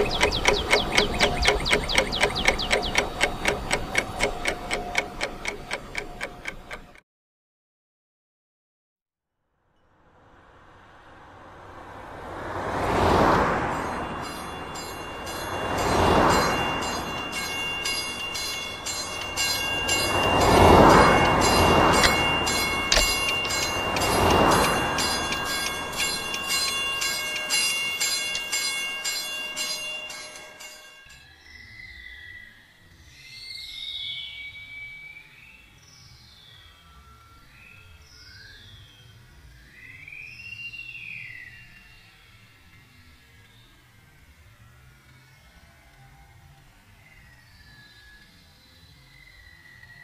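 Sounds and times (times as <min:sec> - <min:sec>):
fast ticking beat: 0:00.0 - 0:07.0
train rumble: 0:00.0 - 0:07.0, 0:10.4 - 0:30.9
train wheel clicks: 0:00.0 - 0:07.0, 0:14.2 - 0:30.9
held musical note: 0:13.7 - 0:30.9.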